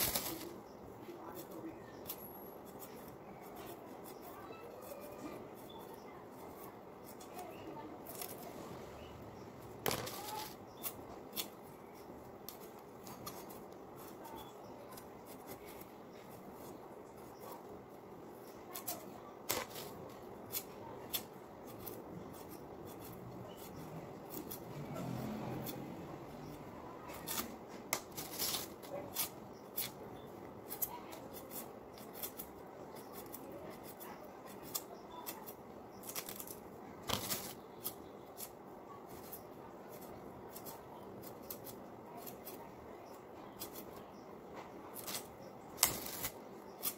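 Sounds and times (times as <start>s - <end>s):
knife slicing vegetable: 18.7s - 46.9s.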